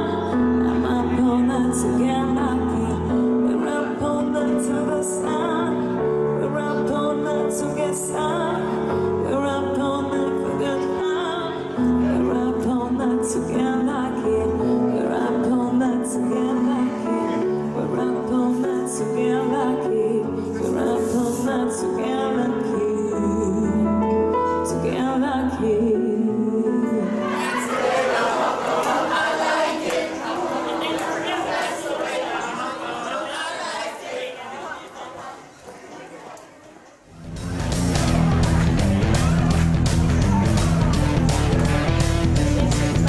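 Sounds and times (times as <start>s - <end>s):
woman singing into a microphone: 0.0s - 27.7s
piano accompaniment: 0.0s - 32.9s, 37.2s - 43.0s.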